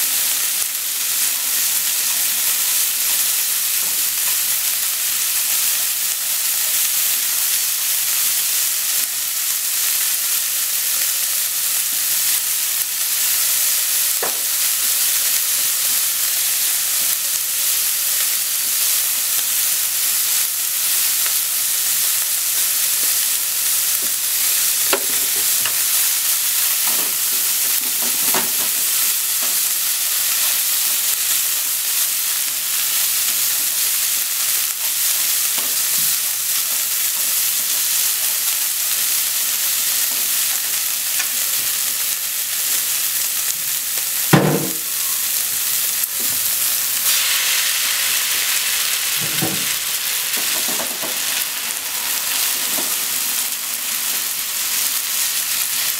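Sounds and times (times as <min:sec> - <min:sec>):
onion sizzling in a frying pan: 0:00.0 - 0:55.9
chopsticks knocking on pan: 0:14.2 - 0:14.5
spaghetti thumping into pan: 0:44.4 - 0:44.9.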